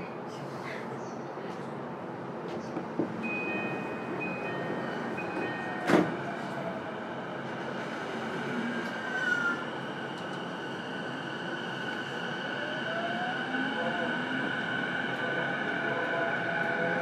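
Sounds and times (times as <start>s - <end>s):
electric train hum and whine: 0.0s - 17.0s.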